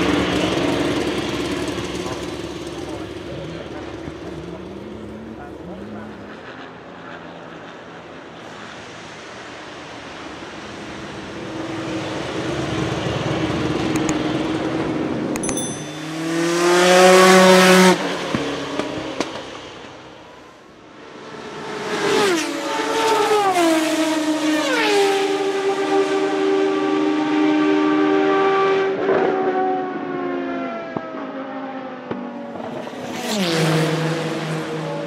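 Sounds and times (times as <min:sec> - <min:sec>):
racing car engine passing: 0:16.0 - 0:19.8.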